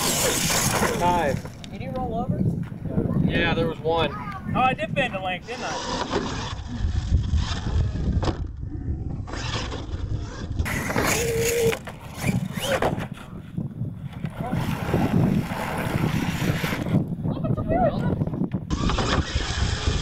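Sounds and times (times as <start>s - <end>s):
radio-controlled truck motor whine: 8.9s - 13.0s, 18.7s - 20.0s.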